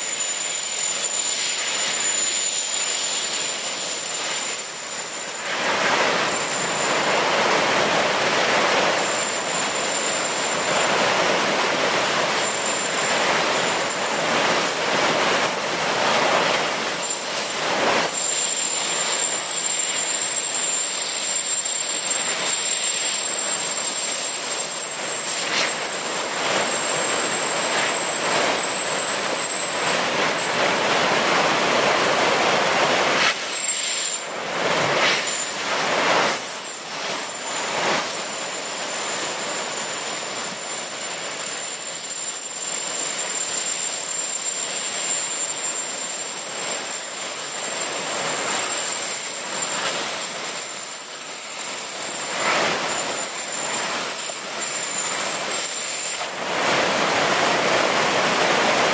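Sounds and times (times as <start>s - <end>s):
rushing flood water: 0.0s - 58.9s
gas bottle hissing: 33.1s - 34.3s.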